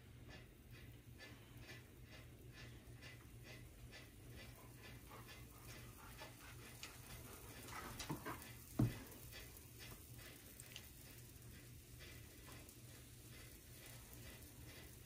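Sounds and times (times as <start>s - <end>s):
faint regular ticking: 0.0s - 15.0s
light knocks: 8.0s - 9.0s.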